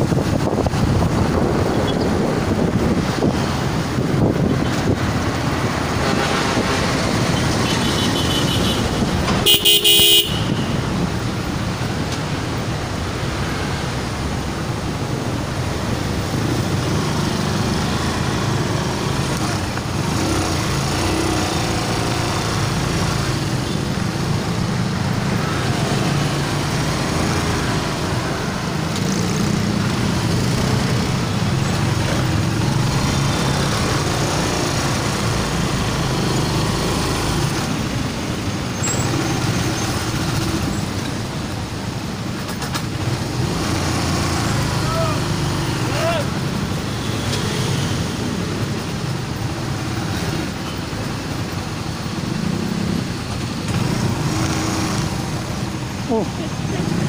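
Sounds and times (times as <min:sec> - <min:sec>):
engine and road noise: 0:00.0 - 0:57.0
vehicle horn honking: 0:07.6 - 0:10.8.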